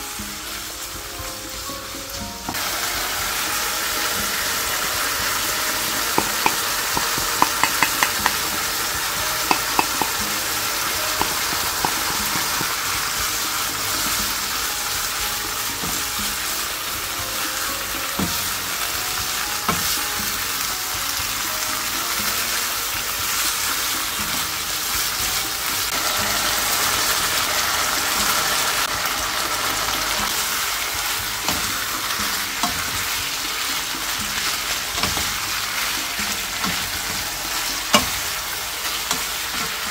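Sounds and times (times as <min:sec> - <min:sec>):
meat sizzling in a frying pan: 0:00.0 - 0:39.9
wooden spatula stirring: 0:06.0 - 0:13.2
knocks: 0:06.2 - 0:08.5, 0:09.5 - 0:10.3.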